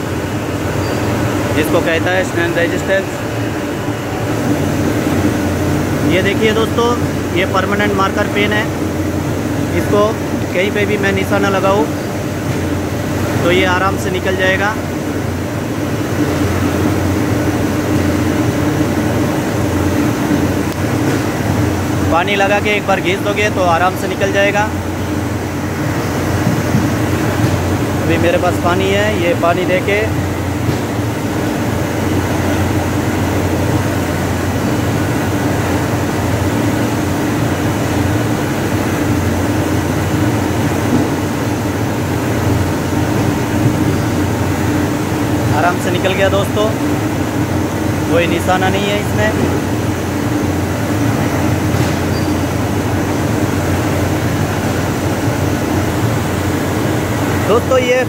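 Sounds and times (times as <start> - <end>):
mechanical hum with low drone: 0.0 - 58.0
faint high steady tone: 0.8 - 1.2.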